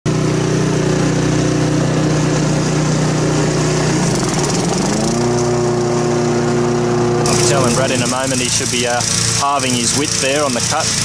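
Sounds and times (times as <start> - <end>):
lawn mower engine running: 0.1 - 11.0.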